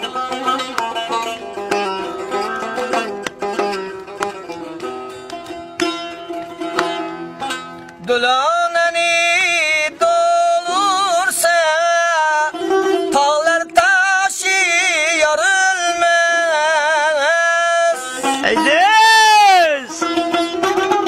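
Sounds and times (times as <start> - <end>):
plucked guitar: 0.0 - 21.0
man singing with vibrato: 8.0 - 20.2.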